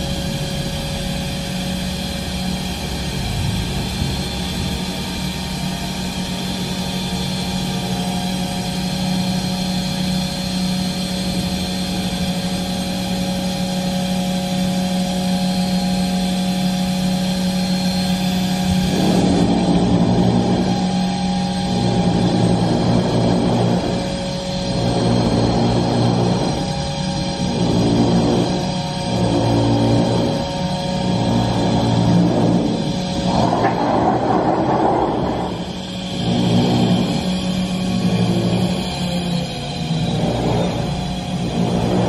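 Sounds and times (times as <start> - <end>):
machine humming with steady tones: 0.0 - 42.0
loud rushing noise: 31.2 - 37.6.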